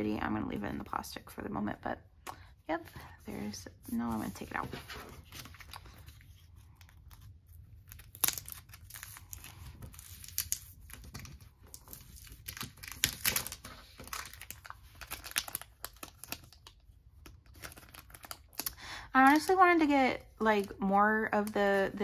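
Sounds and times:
plastic packaging crinkling and tearing: 5.2s - 19.6s.

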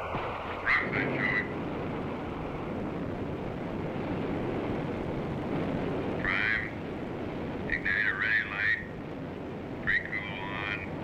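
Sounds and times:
jet aircraft rushing noise: 0.0s - 11.0s
radio sound burst: 0.5s - 1.6s, 6.2s - 6.8s, 7.6s - 9.0s, 9.8s - 11.0s.

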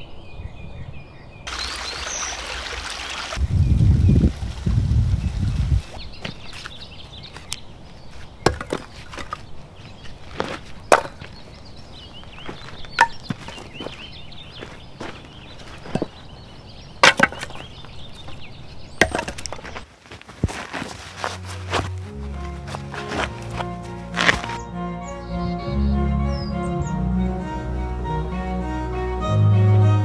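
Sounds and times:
faint birdsong: 0.0s - 4.3s, 5.1s - 19.9s, 22.3s - 28.0s
axe strikes splitting wood: 8.5s - 9.4s, 10.9s - 11.3s, 13.0s - 13.6s, 17.0s - 17.7s, 19.0s - 19.6s.

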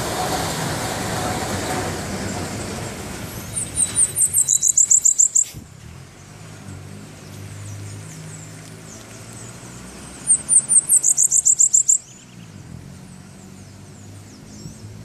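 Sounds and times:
songbird trilling: 3.4s - 5.6s, 10.2s - 12.6s.

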